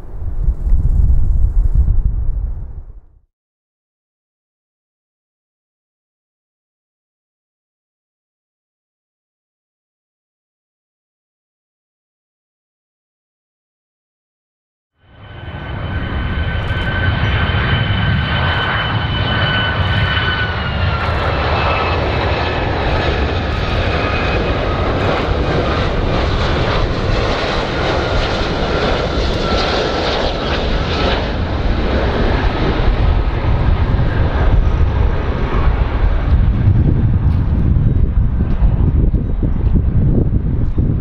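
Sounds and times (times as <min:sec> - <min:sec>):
jet engines deep rumble: 0:00.0 - 0:03.2, 0:15.0 - 0:41.0
jet engine high whine: 0:15.0 - 0:41.0.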